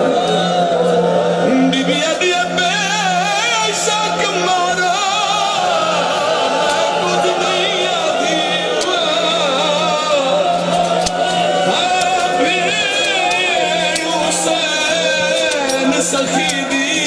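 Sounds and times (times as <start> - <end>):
man singing a lament: 0.0 - 17.0
sharp clicks: 6.6 - 17.0.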